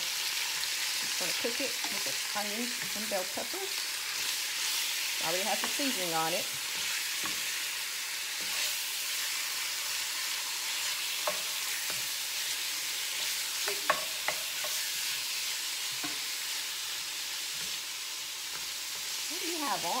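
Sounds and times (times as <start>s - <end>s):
food sizzling in a skillet: 0.0s - 20.0s
wooden spatula knocking pan: 13.6s - 14.8s.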